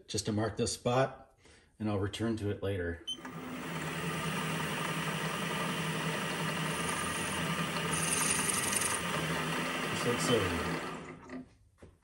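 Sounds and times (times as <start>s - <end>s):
milling machine spindle whirring: 3.2s - 11.4s
drill bit hissing on metal: 3.6s - 11.0s.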